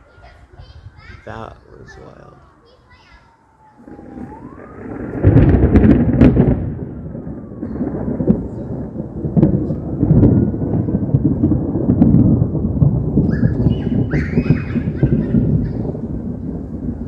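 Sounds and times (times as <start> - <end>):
thunder rolling rumble: 0.0 - 17.0
thunder crackles: 0.4 - 17.0.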